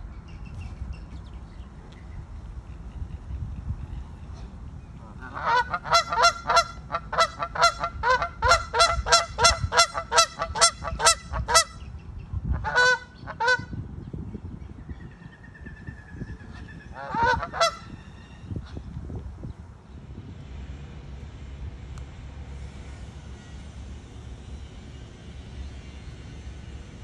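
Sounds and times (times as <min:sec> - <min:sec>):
geese honking: 0:05.0 - 0:11.8, 0:12.6 - 0:13.7, 0:16.5 - 0:18.0.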